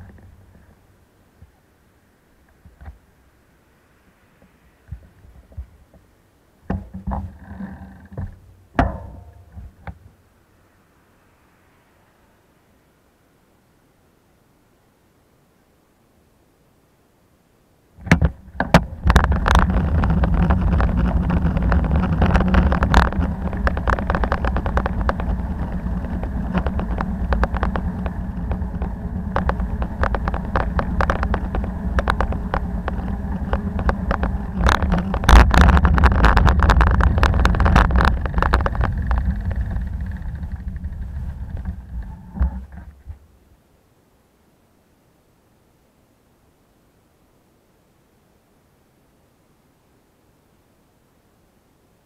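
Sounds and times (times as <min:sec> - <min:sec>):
road rumble: 0:00.0 - 0:14.3, 0:18.0 - 0:43.7
low wind: 0:00.0 - 0:52.0
bicycle knocks and rattles: 0:06.6 - 0:10.2, 0:18.0 - 0:43.2.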